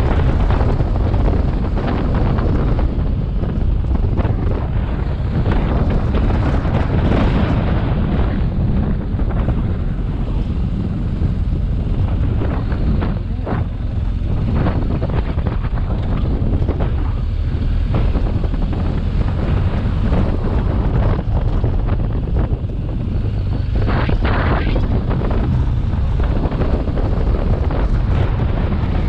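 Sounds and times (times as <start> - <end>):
motorcycle engine rumble: 0.0 - 29.0
wind buffeting microphone: 0.0 - 29.0.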